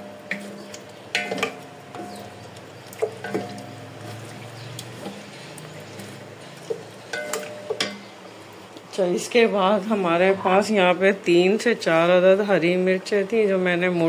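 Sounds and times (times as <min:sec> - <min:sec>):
wooden spoon stirring wet food: 0:00.0 - 0:09.0
spoon knocking metal pot: 0:01.1 - 0:02.3, 0:06.7 - 0:08.1.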